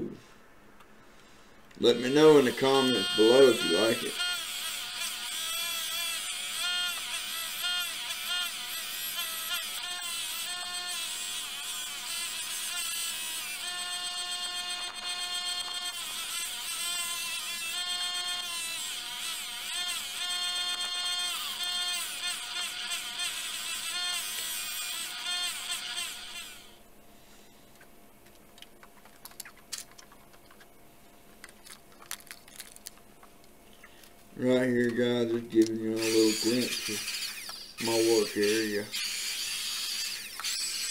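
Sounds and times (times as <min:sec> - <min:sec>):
bench grinder buffing metal: 0:01.9 - 0:26.7, 0:36.0 - 0:40.9.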